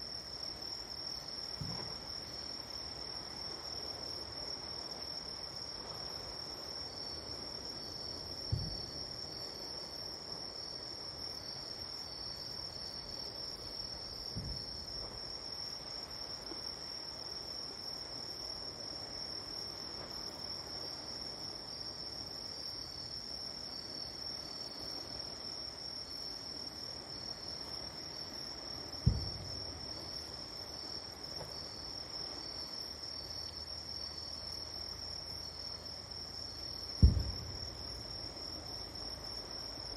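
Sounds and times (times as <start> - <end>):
night insects trilling: 0.0 - 39.9
distant fireworks thumps: 1.6 - 2.0, 8.5 - 8.9, 14.3 - 15.1, 29.0 - 29.7, 37.0 - 38.0.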